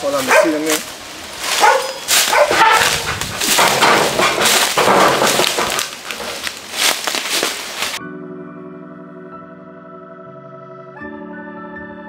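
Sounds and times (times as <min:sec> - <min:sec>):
leafy branches rustling and crashing: 0:00.0 - 0:08.0
organ-like background music: 0:08.0 - 0:12.0.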